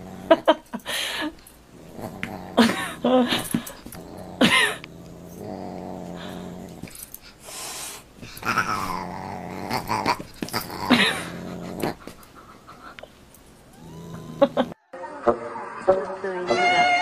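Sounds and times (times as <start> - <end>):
animal growling: 0.0 - 0.6, 1.7 - 7.1, 8.2 - 12.3, 13.7 - 14.8.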